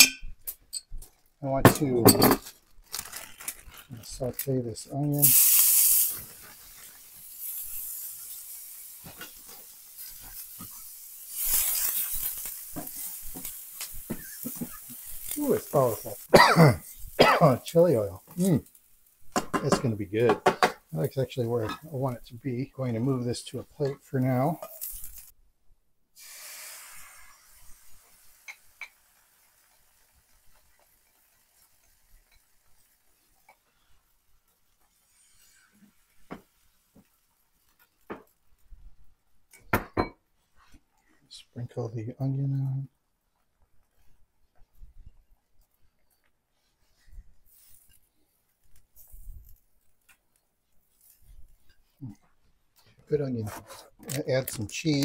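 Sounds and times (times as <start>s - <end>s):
onion sizzling in oil: 2.5s - 25.4s, 26.2s - 39.8s, 47.0s - 52.2s.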